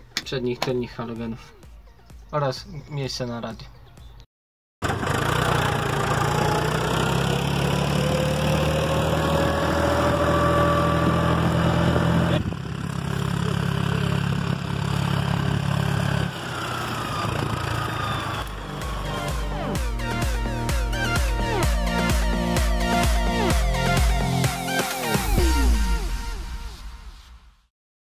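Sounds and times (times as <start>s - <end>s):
tractor diesel engine running: 4.8s - 24.4s.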